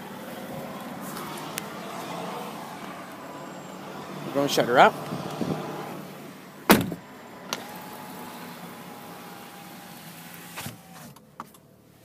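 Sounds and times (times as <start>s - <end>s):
car door thump: 6.7s - 7.0s.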